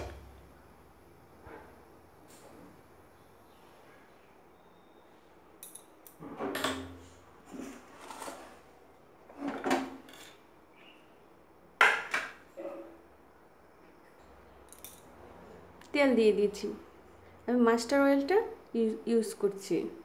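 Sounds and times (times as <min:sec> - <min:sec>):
metal kitchen utensils clattering: 0:09.3 - 0:10.4.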